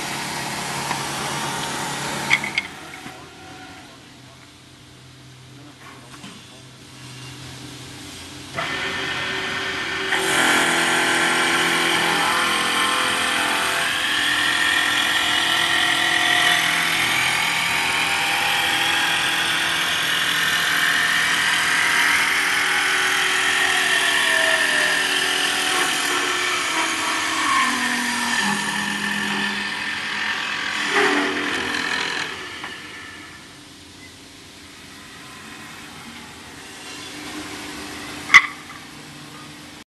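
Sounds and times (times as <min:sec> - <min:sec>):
lathe cutting wood: 0:08.6 - 0:33.4.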